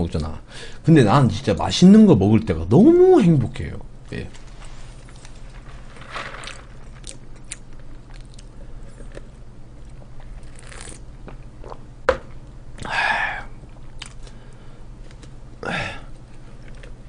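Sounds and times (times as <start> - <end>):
person chewing crunchy food: 6.4 - 12.9, 13.7 - 14.4.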